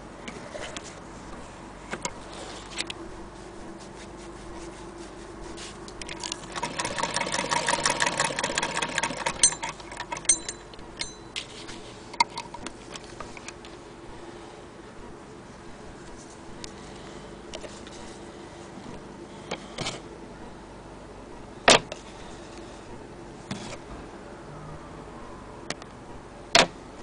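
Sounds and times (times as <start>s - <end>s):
sewing machine clicking: 6.0s - 10.7s.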